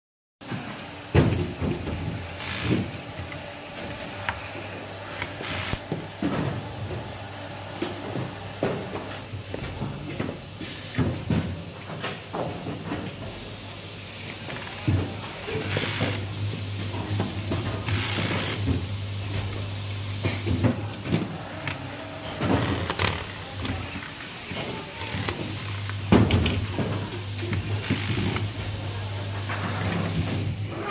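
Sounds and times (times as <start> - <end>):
electric screwdriver driving screws: 2.4 - 2.8, 5.2 - 5.8.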